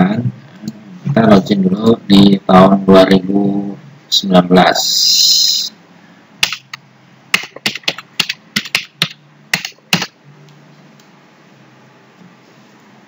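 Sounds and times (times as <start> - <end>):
computer keyboard typing: 6.4 - 10.1.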